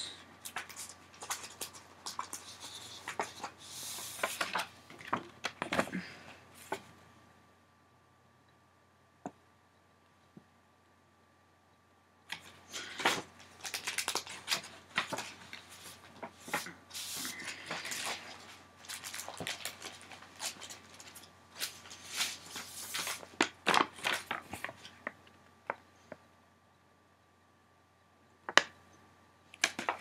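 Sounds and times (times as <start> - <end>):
paper rustling and crackling: 0.4 - 6.9, 12.3 - 25.2, 29.6 - 30.0.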